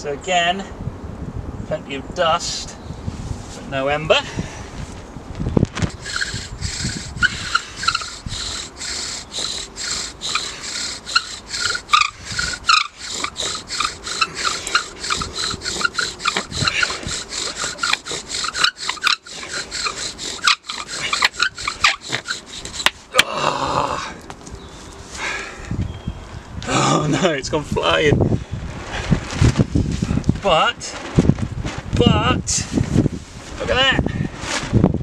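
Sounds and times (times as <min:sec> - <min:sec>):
bow drill rasping wood on wood: 0:05.8 - 0:23.4.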